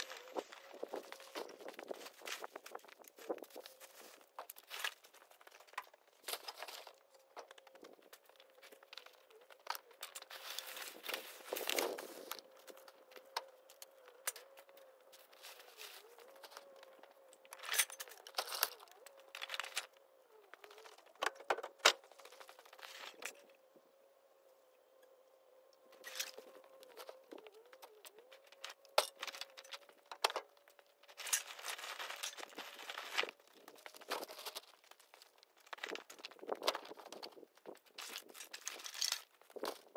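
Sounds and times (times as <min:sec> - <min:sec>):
plastic bags crinkling: 0:28.6 - 0:39.9.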